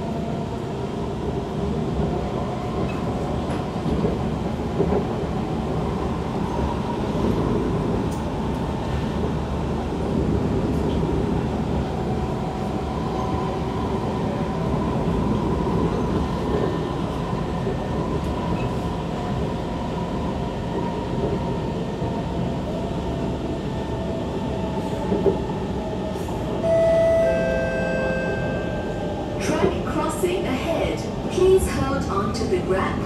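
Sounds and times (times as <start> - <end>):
train wheels rumbling on track: 0.0 - 26.7
chime-like tone: 26.7 - 28.9.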